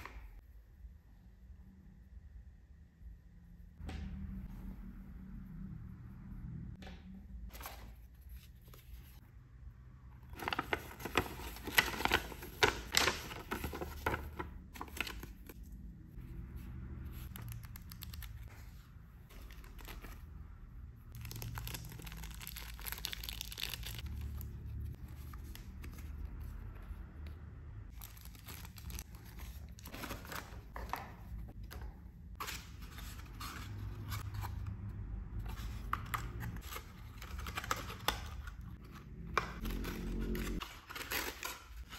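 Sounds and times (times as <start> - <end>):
packaging crinkling and tearing: 21.1 - 24.5, 27.9 - 30.8.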